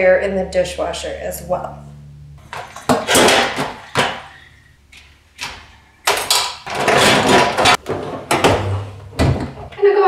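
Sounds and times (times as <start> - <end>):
dishwasher rack clattering: 2.6 - 4.4, 6.1 - 9.7.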